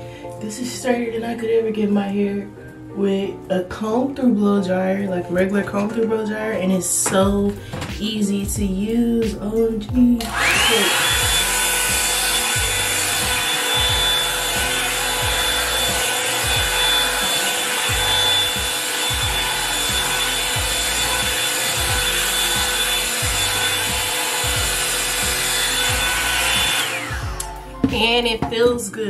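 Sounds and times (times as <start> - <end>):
hair dryer brush whining: 10.2 - 28.6.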